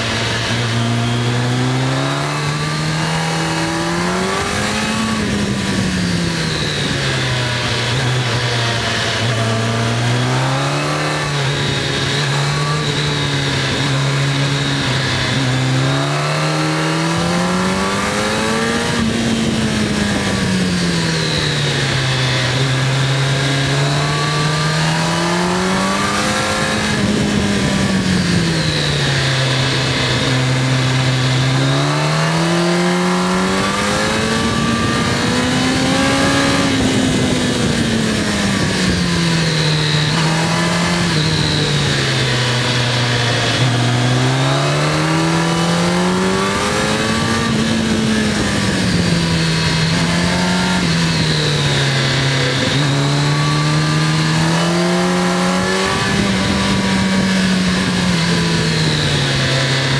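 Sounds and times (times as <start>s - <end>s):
motorcycle engine revving: 0.0s - 59.9s
wind rush: 23.7s - 59.9s.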